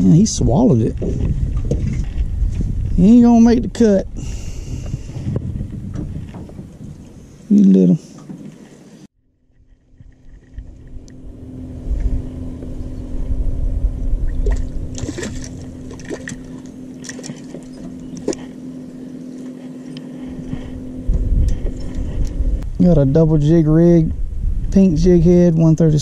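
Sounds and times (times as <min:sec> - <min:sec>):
low hum and rumble: 0:00.0 - 0:26.0
fish splashing at water surface: 0:14.4 - 0:18.5.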